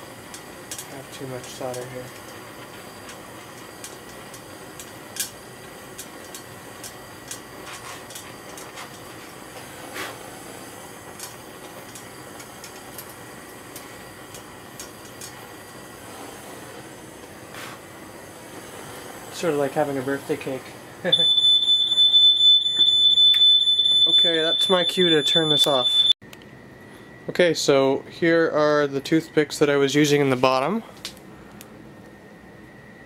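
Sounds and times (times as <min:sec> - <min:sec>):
gas torch hissing: 0:00.0 - 0:25.8.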